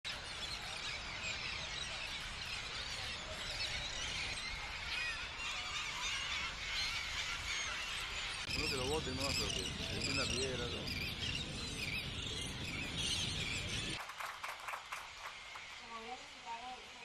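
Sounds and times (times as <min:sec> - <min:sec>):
steady low rumble: 0:08.5 - 0:14.0.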